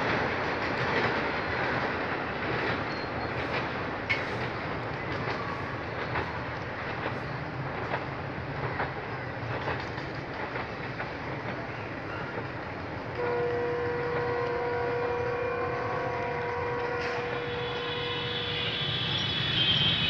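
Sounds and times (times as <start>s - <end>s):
train rumbling on tracks: 0.0s - 20.0s
train horn: 13.1s - 20.0s.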